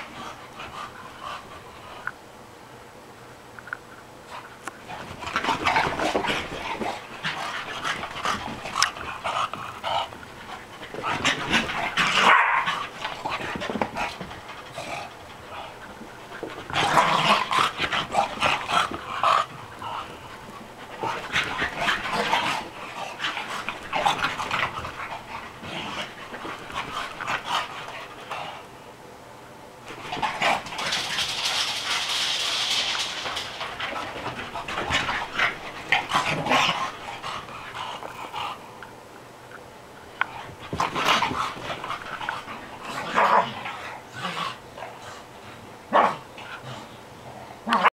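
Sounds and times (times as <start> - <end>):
dogs panting: 0.0 - 2.2, 4.2 - 28.7, 29.9 - 38.9, 40.1 - 45.7
paws scuffling: 4.2 - 28.7, 29.8 - 38.6, 40.0 - 44.0.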